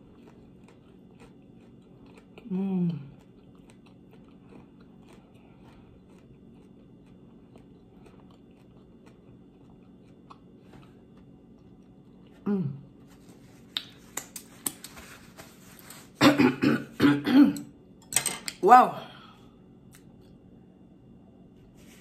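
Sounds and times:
close chewing: 0:00.0 - 0:12.4
lip smacks: 0:13.7 - 0:15.0.

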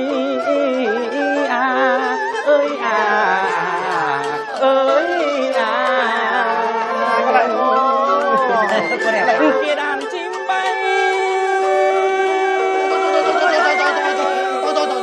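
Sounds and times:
person singing folk melody: 0:00.0 - 0:15.0.

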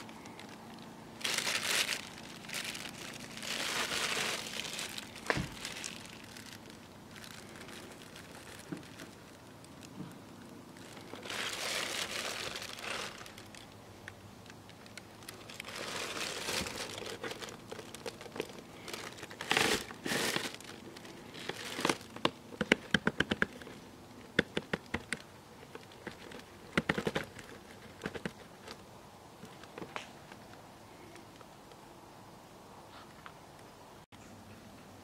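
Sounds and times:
plastic bag crinkling: 0:00.0 - 0:13.8, 0:14.4 - 0:23.4.

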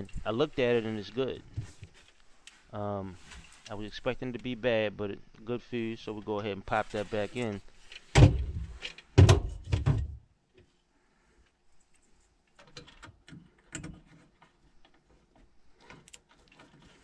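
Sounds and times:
faint clicks and rustling: 0:00.0 - 0:04.6, 0:11.4 - 0:17.0.

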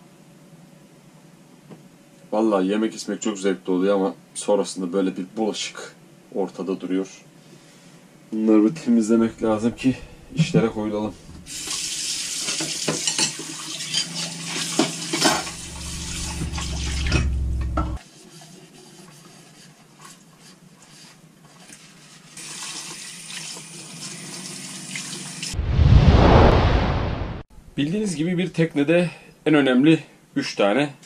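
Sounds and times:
loud whoosh: 0:09.1 - 0:11.6, 0:15.4 - 0:18.0, 0:25.6 - 0:27.9
tap water running into sink: 0:11.4 - 0:17.3.

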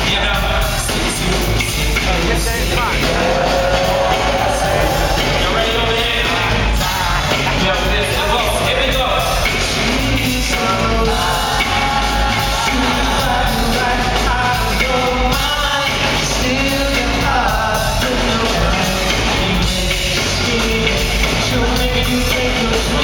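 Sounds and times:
heavy bass line: 0:00.0 - 0:23.0
live band music: 0:00.0 - 0:23.0
person singing into a microphone: 0:09.7 - 0:23.0.

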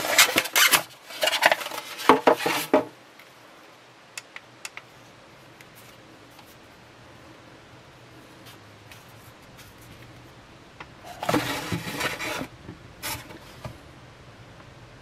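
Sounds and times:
foam rubbing and squeaking: 0:00.0 - 0:02.8, 0:11.0 - 0:13.6
plastic scraping foam: 0:00.0 - 0:02.9, 0:11.0 - 0:13.8.

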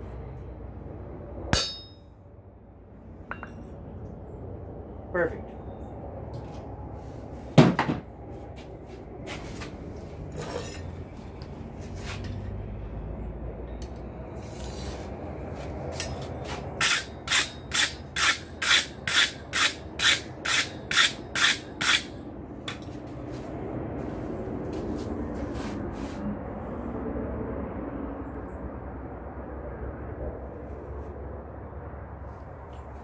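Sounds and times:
hammer blow on steel anvil: 0:01.5 - 0:02.0
scraping strokes across steel: 0:10.3 - 0:11.2, 0:11.8 - 0:12.6, 0:14.4 - 0:23.0.

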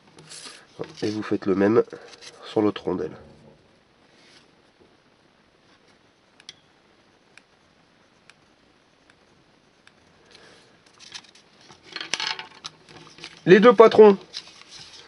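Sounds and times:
pencil ticks: 0:07.3 - 0:10.0.

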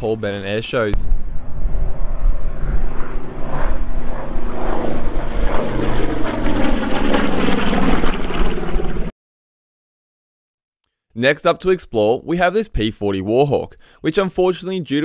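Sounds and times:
propeller aircraft engine drone: 0:00.0 - 0:09.1.

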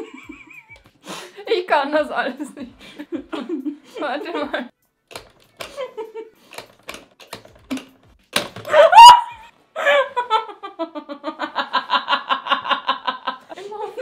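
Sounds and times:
rhythmic laughter: 0:00.0 - 0:01.0
game knob clicks: 0:05.1 - 0:05.8, 0:06.5 - 0:08.7
woman shrieking: 0:08.7 - 0:09.5.

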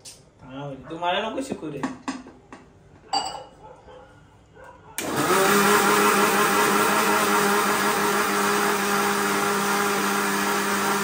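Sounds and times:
mixer grinder motor whining: 0:05.0 - 0:11.0.

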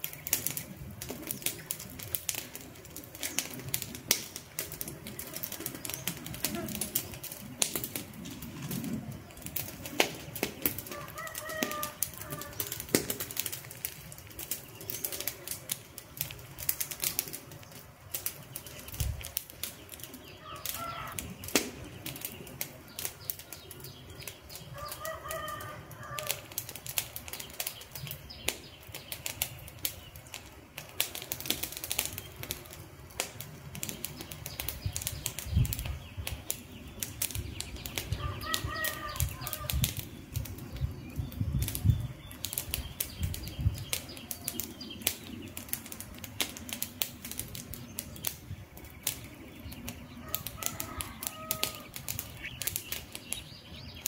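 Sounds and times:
campfire crackling and popping: 0:00.0 - 0:54.0
bird calling: 0:10.5 - 0:12.9, 0:19.8 - 0:26.5, 0:34.2 - 0:41.4, 0:48.0 - 0:54.0.

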